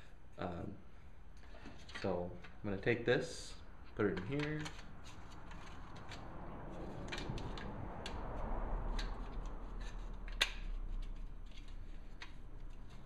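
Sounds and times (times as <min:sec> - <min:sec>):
metal clicks and scrapes: 0:04.1 - 0:08.2, 0:08.8 - 0:13.0.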